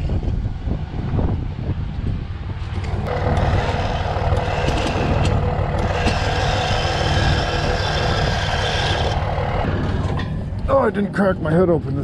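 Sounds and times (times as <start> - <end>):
low engine rumble: 0.0 - 12.0
winch winding cable: 2.8 - 10.4.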